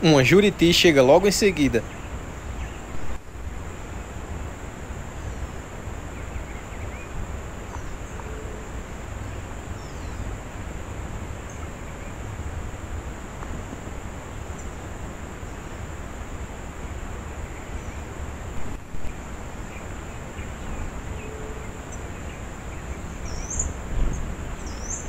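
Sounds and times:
wind rumbling on microphone: 0:00.0 - 0:25.0
bird chirps: 0:19.0 - 0:25.0.

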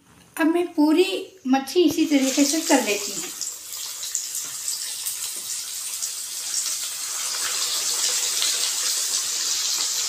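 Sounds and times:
fish sizzling in hot oil: 0:02.0 - 0:10.0.

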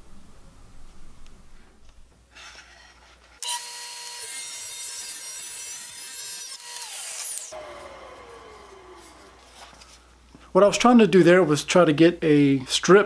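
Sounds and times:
table saw whining: 0:03.4 - 0:10.2.

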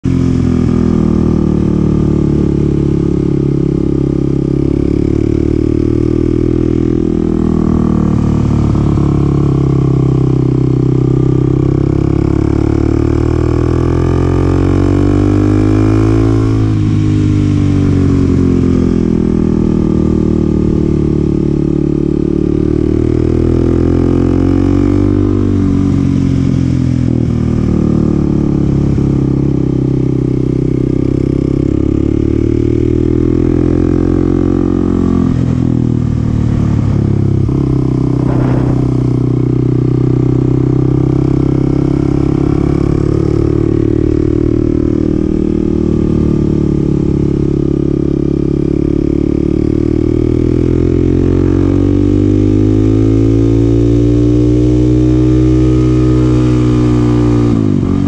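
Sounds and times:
motorcycle engine revving: 0:00.0 - 0:58.0
wind rush: 0:35.4 - 0:40.5.

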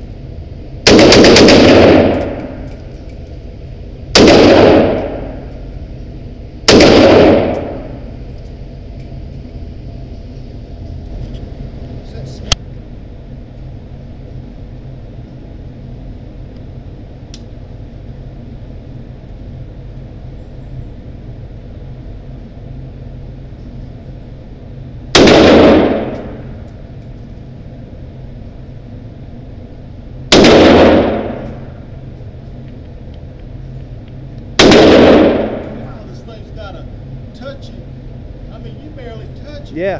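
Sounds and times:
steady low hum: 0:00.0 - 0:39.9
rifle shots echoing indoors: 0:00.8 - 0:02.8, 0:04.1 - 0:05.5, 0:06.7 - 0:08.1, 0:25.1 - 0:26.6, 0:30.3 - 0:31.8, 0:34.6 - 0:35.8.

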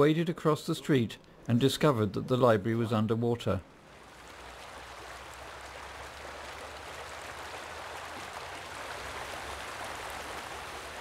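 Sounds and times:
floodwater rushing: 0:03.8 - 0:11.0.

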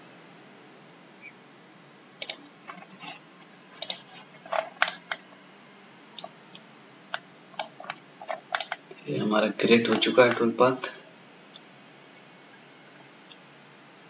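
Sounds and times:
steady low hiss: 0:00.0 - 0:14.0
mouse and keyboard clicks: 0:02.2 - 0:02.8, 0:03.8 - 0:04.1, 0:07.1 - 0:08.9, 0:09.9 - 0:10.4.

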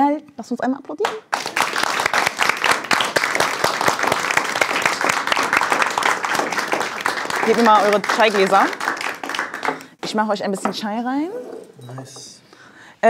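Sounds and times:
group applauding: 0:01.0 - 0:10.0.

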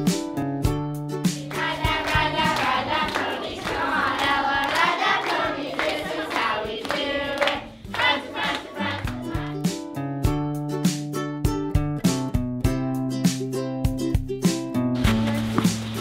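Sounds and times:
people clapping along: 0:01.3 - 0:09.6
girls singing together: 0:01.4 - 0:09.6.

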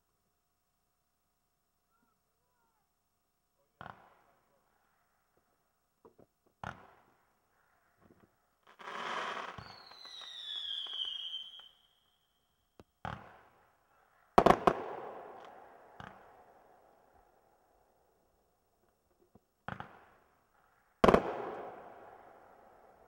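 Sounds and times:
falling whistle: 0:09.6 - 0:12.3.

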